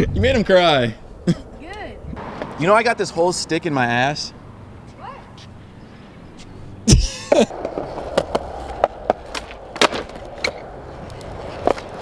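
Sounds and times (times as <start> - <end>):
skateboard wheels rolling on concrete: 0.0 - 12.0
skateboard landing smack: 7.3 - 10.6
skateboard pop crack: 7.3 - 12.0.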